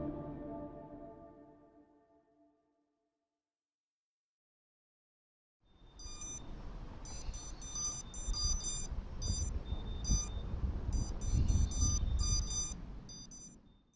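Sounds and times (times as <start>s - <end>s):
short high electronic beeps: 6.0s - 6.4s, 7.1s - 10.4s, 11.0s - 13.9s.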